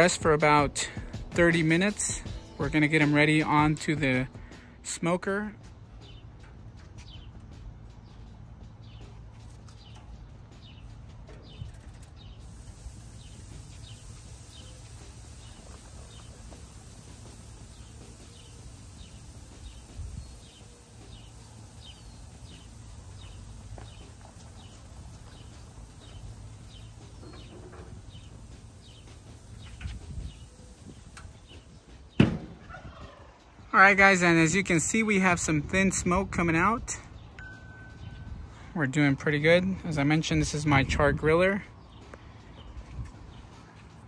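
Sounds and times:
small birds chirping: 0:05.7 - 0:33.7
steady low rumble: 0:10.3 - 0:32.1.

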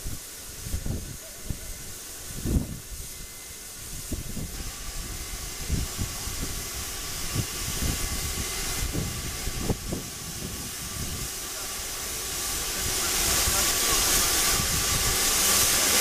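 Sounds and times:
steam hissing: 0:00.0 - 0:16.0.

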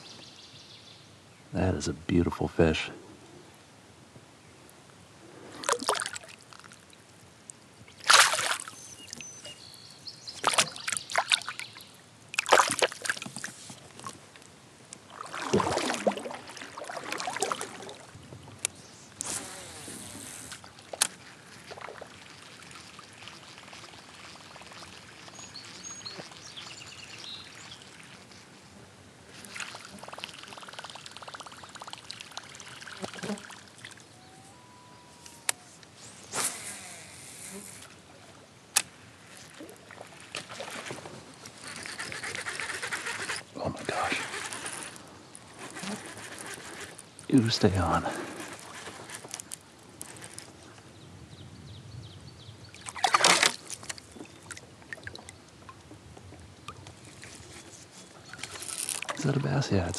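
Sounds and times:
water splashing beside kayak: 0:05.4 - 0:07.0, 0:07.9 - 0:09.5, 0:10.3 - 0:14.3, 0:15.0 - 0:18.6, 0:19.4 - 0:28.4, 0:52.8 - 0:57.5.

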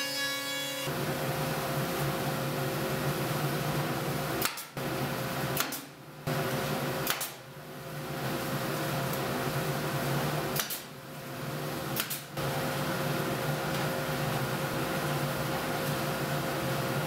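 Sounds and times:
nail gun firing: 0:04.4 - 0:04.8, 0:05.6 - 0:05.9, 0:07.0 - 0:07.4, 0:10.6 - 0:10.9.

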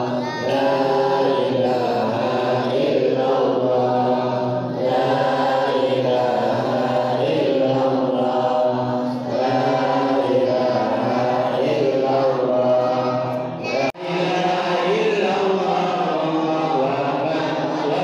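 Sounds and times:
women chanting in unison: 0:00.0 - 0:15.7.

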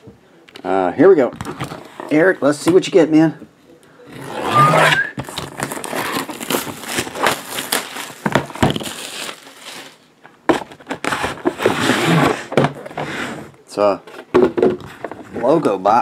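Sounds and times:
cardboard box rustling: 0:05.0 - 0:12.8.

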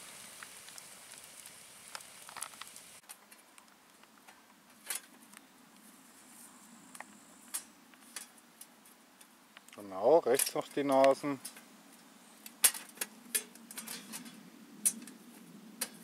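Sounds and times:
campfire crackling: 0:00.0 - 0:16.0
metal grill clicking and clinking: 0:07.5 - 0:08.4, 0:10.2 - 0:11.7, 0:12.4 - 0:15.2, 0:15.8 - 0:16.0.

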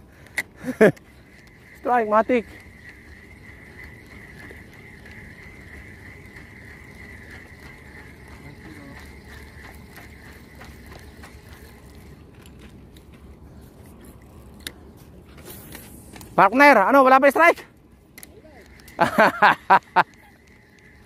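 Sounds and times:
steady high whine: 0:00.0 - 0:21.0
fishing reel clicking: 0:00.2 - 0:12.6, 0:18.1 - 0:21.0.

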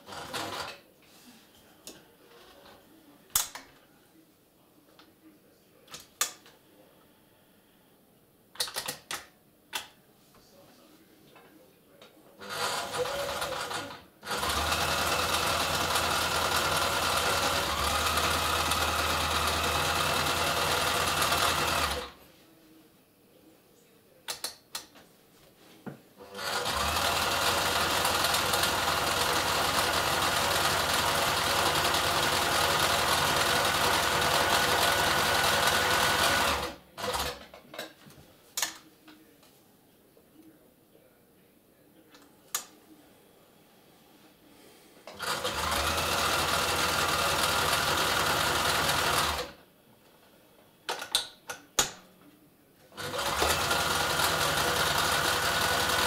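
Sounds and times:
sewing machine stitching: 0:00.0 - 0:00.8, 0:12.4 - 0:22.2, 0:26.2 - 0:37.5, 0:45.1 - 0:49.6, 0:53.0 - 0:56.0.

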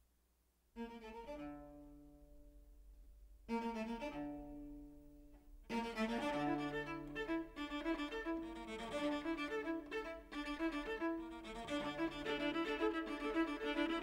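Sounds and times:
string quartet playing held chords: 0:05.7 - 0:14.0.

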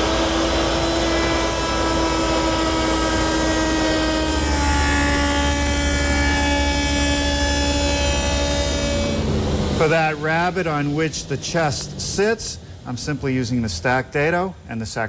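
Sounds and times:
router whining while cutting wood: 0:00.0 - 0:10.4.

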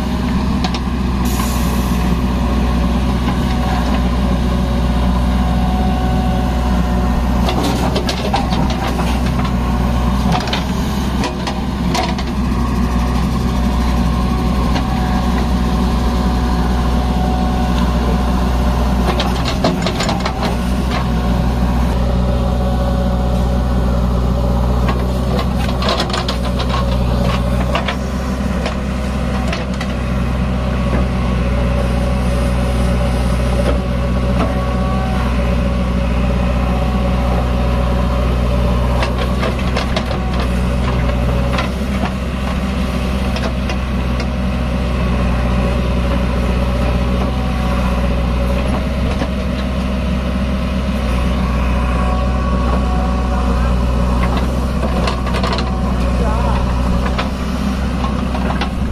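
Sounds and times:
diesel engine running: 0:00.0 - 0:58.9.

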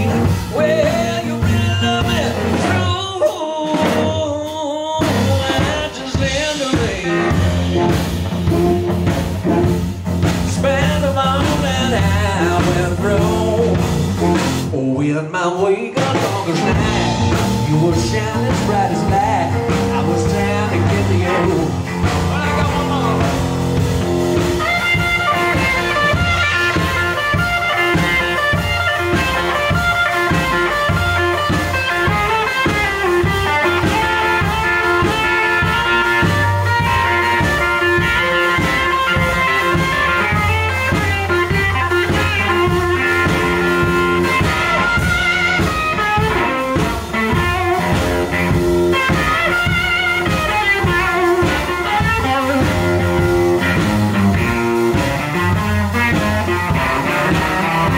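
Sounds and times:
blues band playing: 0:00.0 - 0:57.9
electric guitar solo: 0:21.7 - 0:57.9.

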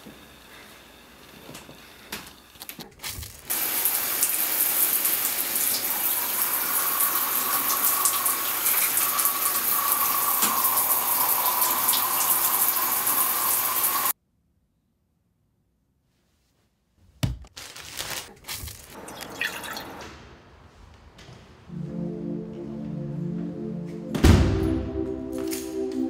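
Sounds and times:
shower water running: 0:03.2 - 0:14.2, 0:18.6 - 0:20.0.

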